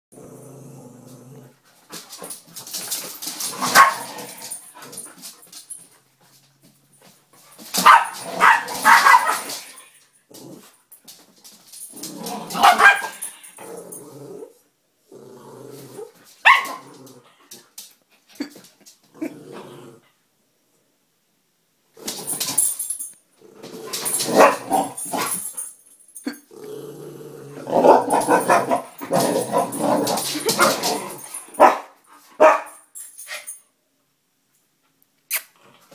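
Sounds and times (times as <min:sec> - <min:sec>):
small dog growling: 0:00.1 - 0:01.6, 0:13.6 - 0:16.2, 0:19.1 - 0:20.1, 0:26.5 - 0:31.1.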